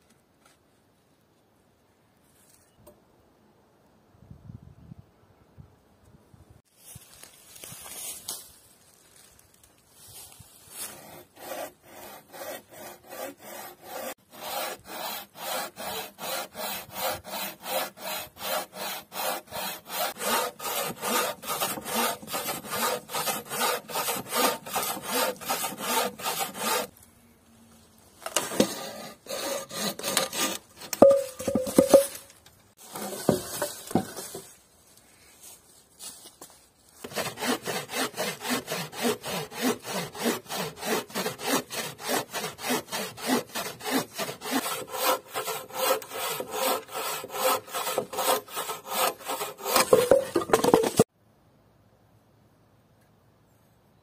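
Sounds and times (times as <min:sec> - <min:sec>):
rustling: 0:06.7 - 0:11.0, 0:30.4 - 0:37.0
bow saw cutting log: 0:10.8 - 0:26.9, 0:28.3 - 0:32.2, 0:37.0 - 0:51.1.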